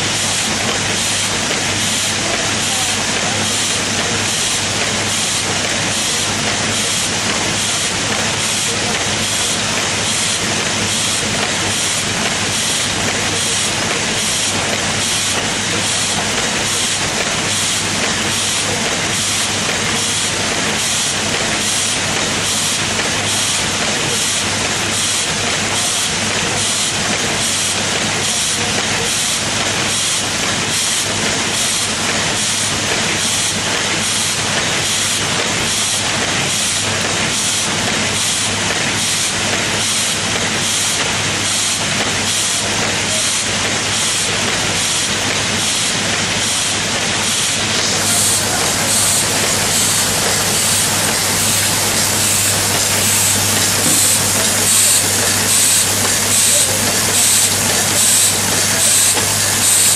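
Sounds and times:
machine hissing with regular strokes: 46.5s - 59.9s.

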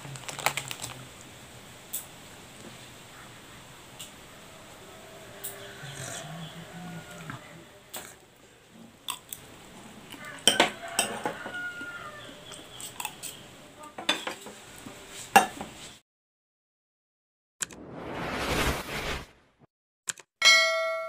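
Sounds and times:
cutlery clinking on ceramic plates: 10.4s - 11.6s, 14.0s - 14.6s, 15.4s - 15.7s
click: 20.1s - 20.3s.

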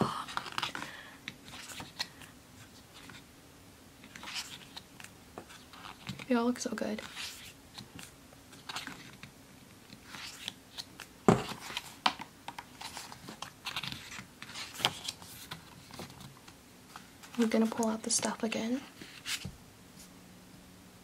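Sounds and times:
book pages rustling: 0.2s - 3.3s, 4.0s - 20.1s.

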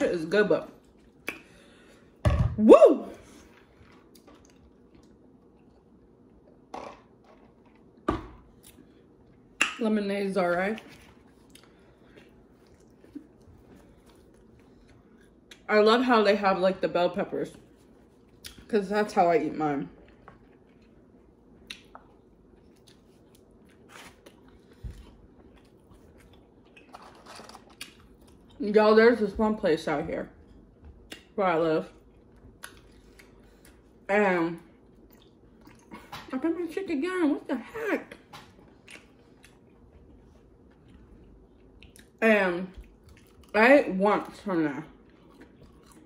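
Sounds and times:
faint chewing: 10.8s - 15.7s, 19.9s - 28.6s, 31.9s - 34.0s, 34.7s - 36.2s, 38.1s - 43.6s, 44.9s - 46.0s.

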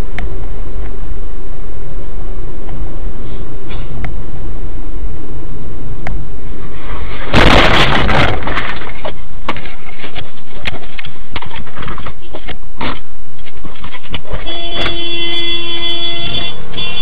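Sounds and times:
distorted background noise: 0.0s - 17.0s
loud crash: 6.7s - 9.2s.

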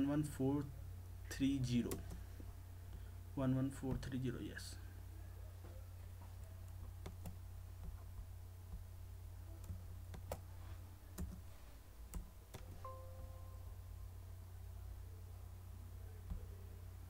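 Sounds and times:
low hum: 4.7s - 17.0s
faint held tone: 12.8s - 14.2s.

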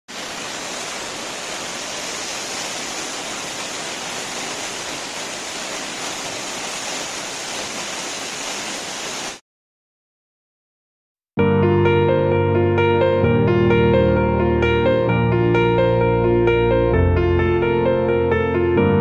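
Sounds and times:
waterfall rushing: 0.1s - 9.4s.

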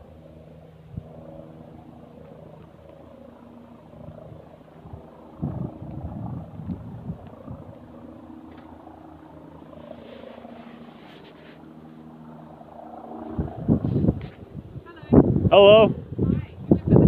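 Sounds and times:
engine hum: 0.0s - 16.9s
helicopter rotor beating: 0.0s - 17.0s.

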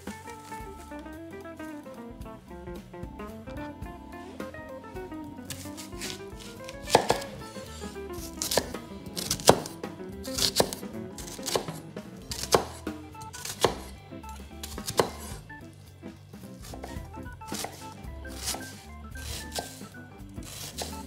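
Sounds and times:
light background music: 0.0s - 21.0s
knife chopping on cutting board: 5.5s - 14.0s, 14.6s - 15.5s, 16.6s - 21.0s.

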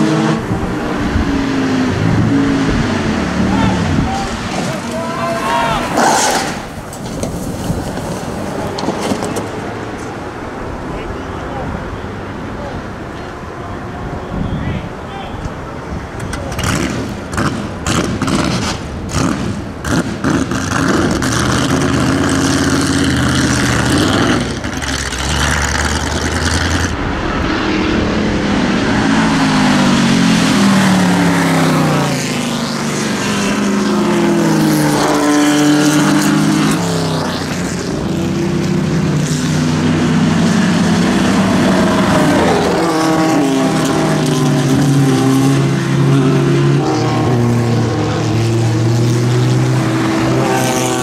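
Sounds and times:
racing car engines passing: 0.0s - 51.0s
engine pops and cracks: 6.2s - 10.2s, 16.2s - 21.4s.

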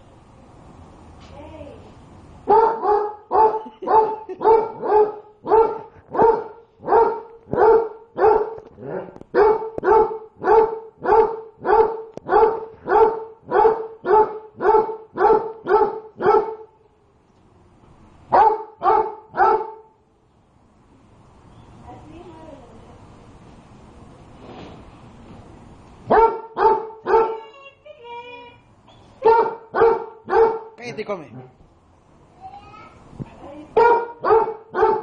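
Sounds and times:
dog barking: 2.5s - 16.7s, 18.3s - 19.9s, 26.1s - 27.4s, 29.2s - 30.8s, 33.8s - 35.0s.

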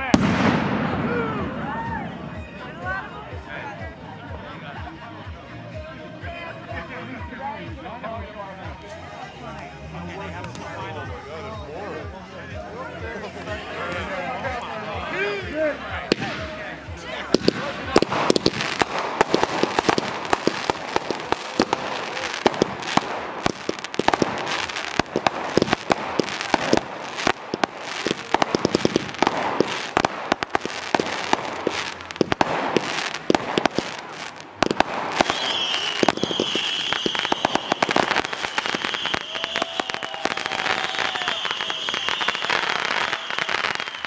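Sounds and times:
fireworks cracking and banging: 0.0s - 2.6s, 16.1s - 44.0s
high wavering whistle: 35.3s - 40.1s.

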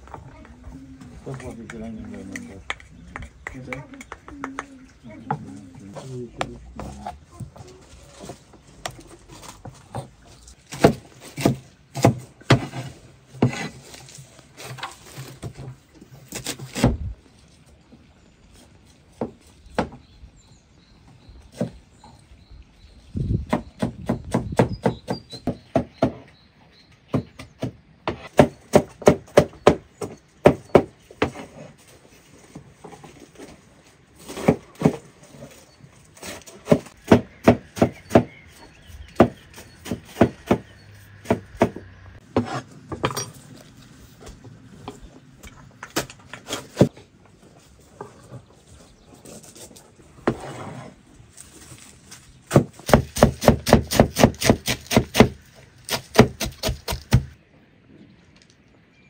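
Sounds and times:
knife chopping on wooden board: 39.1s - 42.6s, 52.5s - 57.3s.

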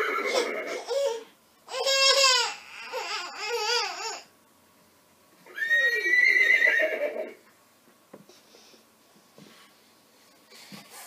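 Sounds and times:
toy horse whinny: 0.0s - 0.9s, 5.5s - 7.4s.

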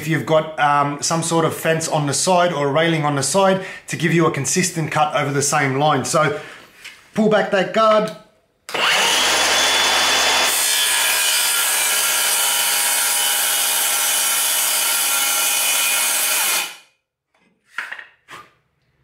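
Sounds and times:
circular saw cutting board: 8.7s - 16.8s.

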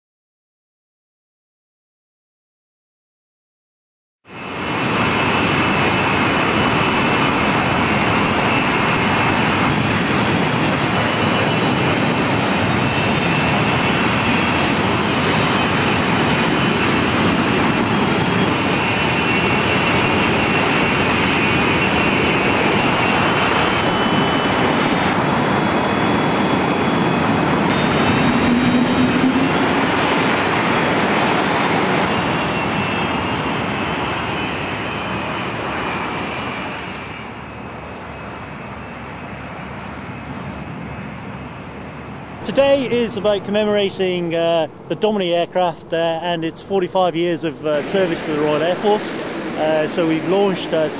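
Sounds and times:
jet engines running: 4.3s - 50.9s.

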